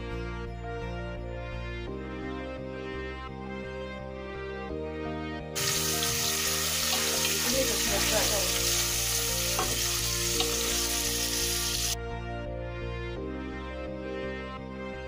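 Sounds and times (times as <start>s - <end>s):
background music: 0.0s - 15.0s
vegetables sizzling in a pot: 5.6s - 12.0s.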